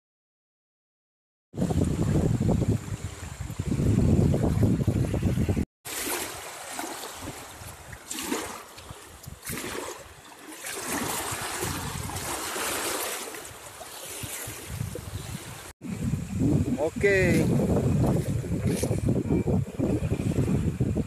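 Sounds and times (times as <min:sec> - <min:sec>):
wind buffeting microphone: 0:01.5 - 0:05.7, 0:06.9 - 0:21.0
water splashing and trickling: 0:01.6 - 0:21.0.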